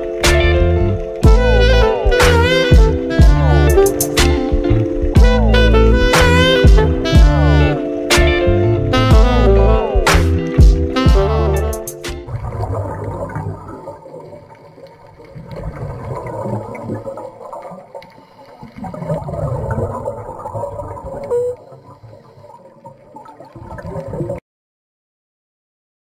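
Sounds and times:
underwater exhaled bubbles: 12.2s - 24.4s.

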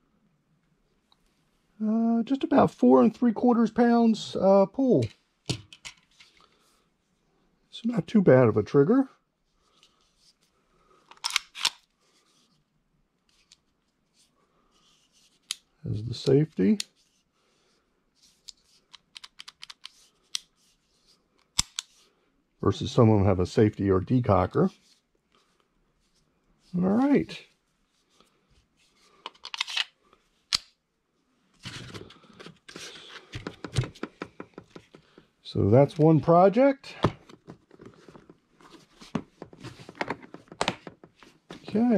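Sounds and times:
pistol scraping in plastic case: 29.3s - 30.0s
handling rustle: 37.1s - 41.9s.

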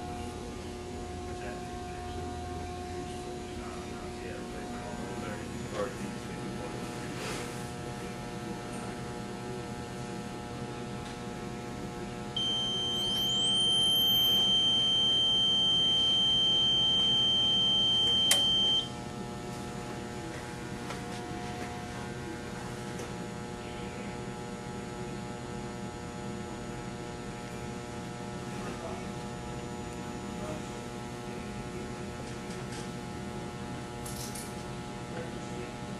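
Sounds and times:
electrical hum: 0.0s - 35.9s
loud high beep: 12.4s - 18.9s.

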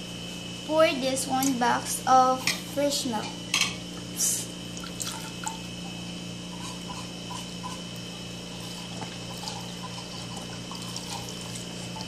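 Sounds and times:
steady hum: 0.0s - 12.0s
small drips: 4.7s - 5.6s
liquid splash: 4.8s - 5.6s
milk pouring into a bowl: 6.6s - 12.0s.

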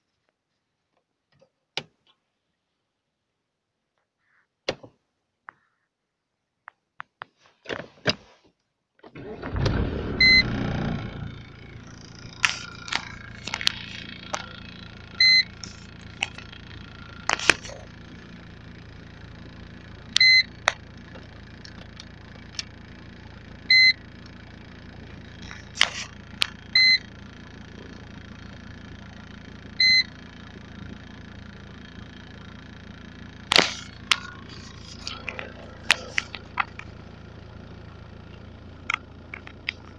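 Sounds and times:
diesel engine starting and idling: 9.1s - 39.9s
short electronic beep: 15.2s - 15.6s.

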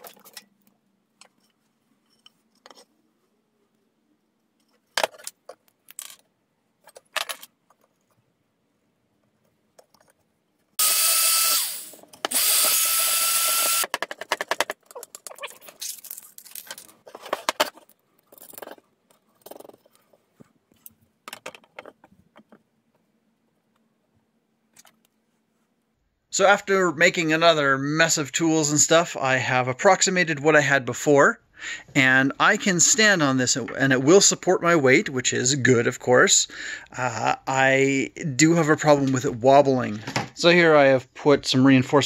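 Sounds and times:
hand tools and wood clicking: 0.0s - 8.4s, 9.1s - 23.9s
power tool motor whine: 10.8s - 13.9s.

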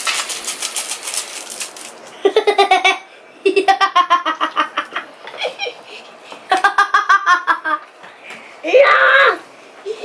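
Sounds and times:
child laughing: 2.2s - 5.9s, 6.5s - 7.9s.

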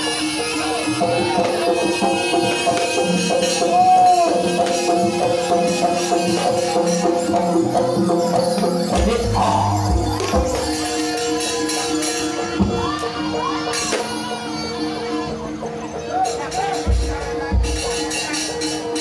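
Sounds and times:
drums: 0.0s - 19.0s
jingling percussion: 0.0s - 19.0s
reedy melody: 8.8s - 11.0s.

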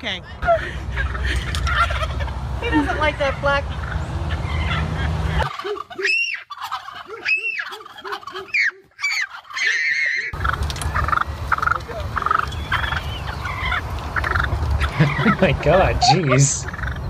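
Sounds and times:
turkey gobbling: 1.0s - 17.0s
steady low rumble: 10.4s - 17.0s.

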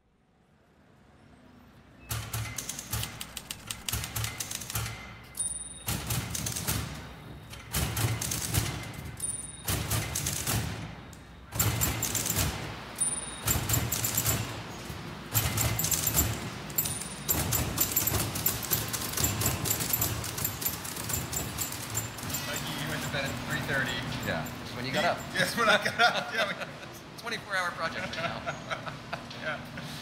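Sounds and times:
typewriter key clatter: 2.1s - 10.8s, 11.5s - 12.6s, 13.4s - 14.6s, 15.3s - 24.1s
typewriter bell ding: 2.1s - 14.7s, 15.4s - 25.7s.

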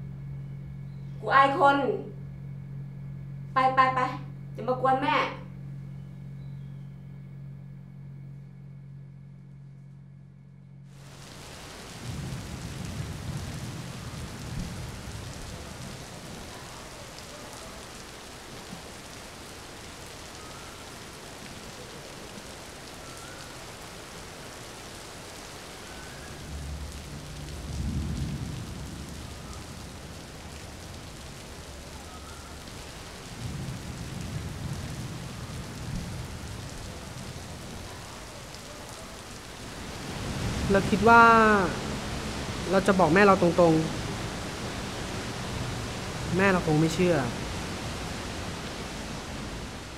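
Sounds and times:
rain hissing: 10.9s - 49.9s
thunder rolling: 11.7s - 16.7s, 26.3s - 31.3s, 32.2s - 37.8s.

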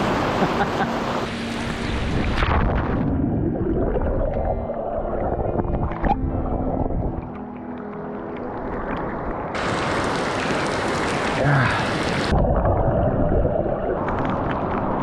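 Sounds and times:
underwater churning and bubbling: 0.0s - 15.0s
heavy rain hissing: 9.6s - 12.3s.

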